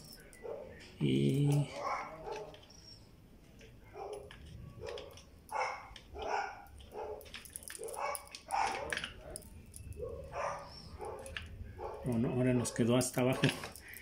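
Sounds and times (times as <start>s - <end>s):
dog barking: 0.4s - 0.8s, 1.6s - 2.8s, 3.8s - 13.2s.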